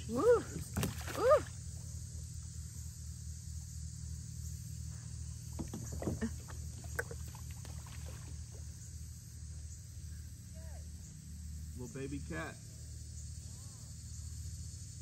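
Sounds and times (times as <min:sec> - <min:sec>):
steady low hum: 0:00.0 - 0:15.0
fish splashing at surface: 0:00.7 - 0:01.4, 0:06.0 - 0:08.6
knocks on kayak: 0:05.5 - 0:07.1.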